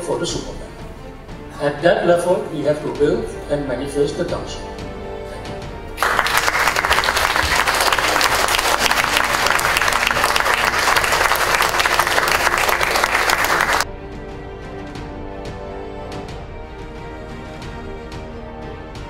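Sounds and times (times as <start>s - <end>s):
soft background music: 0.0s - 19.0s
audience applauding: 6.0s - 13.9s.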